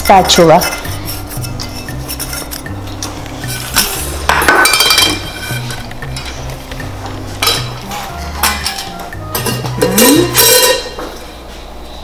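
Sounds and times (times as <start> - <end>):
metal spatula scraping cake pan: 0.4 - 2.8, 3.4 - 4.2, 5.1 - 5.9.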